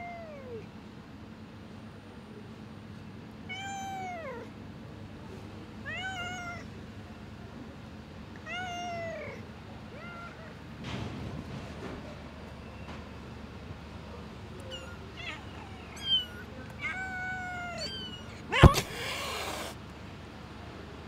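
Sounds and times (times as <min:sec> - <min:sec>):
cat meowing: 0:03.5 - 0:04.4, 0:05.9 - 0:06.7, 0:08.4 - 0:10.6, 0:14.6 - 0:19.8.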